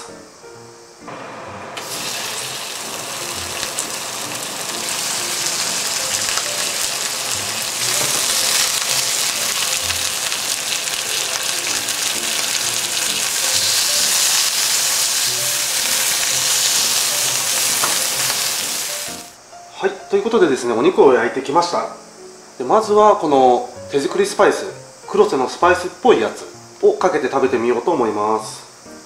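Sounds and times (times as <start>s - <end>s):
meat sizzling in a frying pan: 1.8s - 19.4s.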